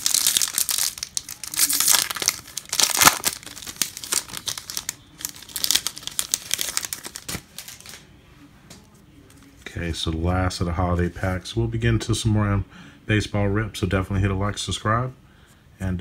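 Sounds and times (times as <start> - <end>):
wrapper tearing and crinkling: 0.0 - 8.0.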